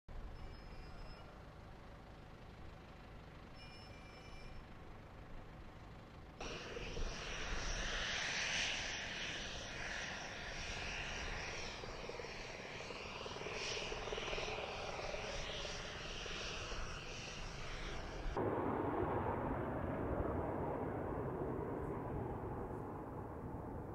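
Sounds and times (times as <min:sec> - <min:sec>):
aircraft low rumble: 0:00.1 - 0:23.9
jet engine rushing hiss: 0:06.4 - 0:18.6.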